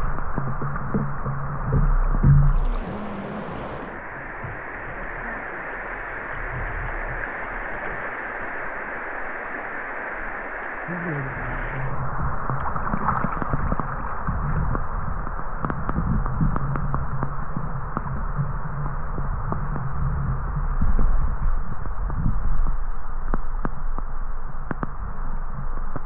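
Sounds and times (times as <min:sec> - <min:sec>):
river water rushing: 0:02.5 - 0:04.2.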